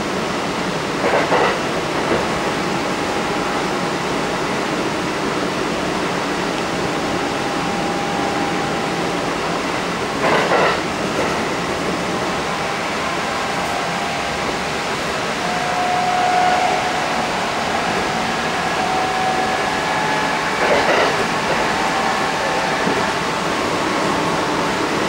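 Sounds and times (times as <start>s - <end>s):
train wheels rumbling on rail: 0.0s - 25.0s
faint whine: 6.0s - 10.2s.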